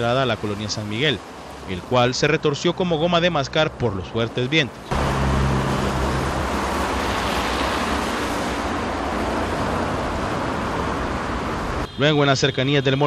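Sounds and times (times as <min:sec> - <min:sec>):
road traffic rushing: 0:00.0 - 0:13.0
vehicle engine hum: 0:03.8 - 0:12.0.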